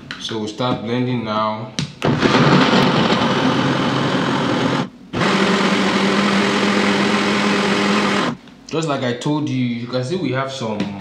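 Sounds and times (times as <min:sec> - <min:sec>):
blender running: 0:02.0 - 0:08.4.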